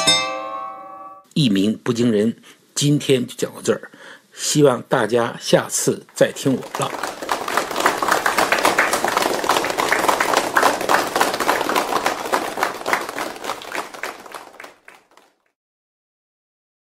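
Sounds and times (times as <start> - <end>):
hands clapping: 6.1 - 15.5.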